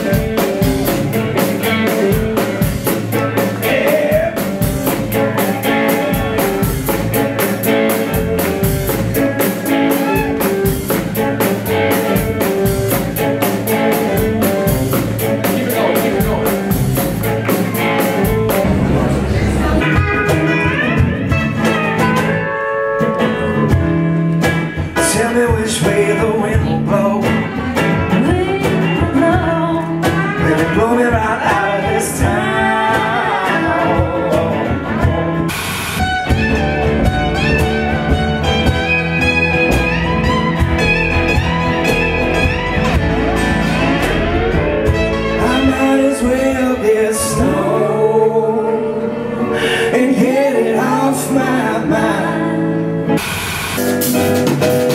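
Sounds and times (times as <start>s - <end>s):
acoustic guitar: 0.0s - 54.9s
upright bass: 0.0s - 54.9s
person singing: 1.4s - 8.5s, 13.5s - 21.0s, 25.0s - 35.0s, 45.2s - 53.0s.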